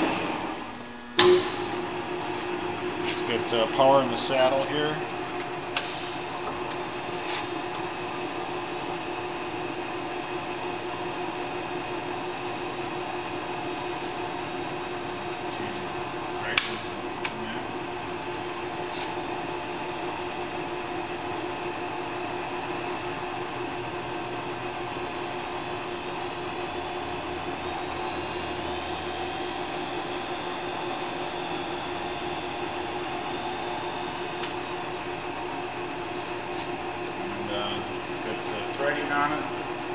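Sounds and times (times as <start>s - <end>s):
lathe motor whine: 0.0s - 39.9s
sharp click: 16.5s - 17.4s.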